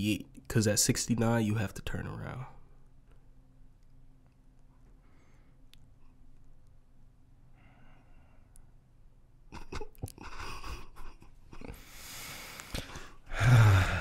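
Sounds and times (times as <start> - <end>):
faint low hum: 0.0 - 14.0
breathy vocal sound: 11.9 - 14.0.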